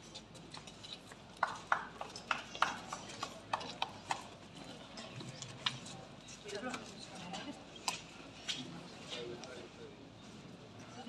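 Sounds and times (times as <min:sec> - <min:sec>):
sparse hand clapping: 0:01.4 - 0:04.2.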